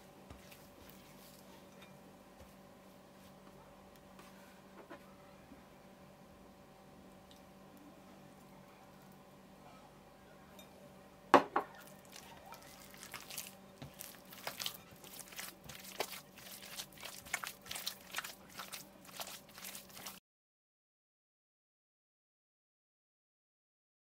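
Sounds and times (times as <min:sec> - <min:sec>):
dough squelching: 0:00.2 - 0:03.4, 0:11.7 - 0:20.2.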